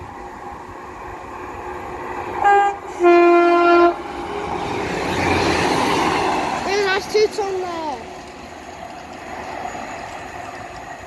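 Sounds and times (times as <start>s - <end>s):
train rumbling: 0.0s - 11.0s
two-tone train horn: 2.4s - 4.0s.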